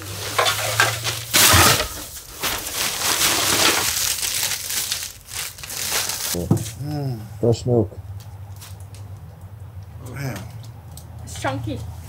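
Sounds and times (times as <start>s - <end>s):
shovel scraping debris: 0.0s - 4.2s
plastic bag rustling: 0.0s - 6.8s.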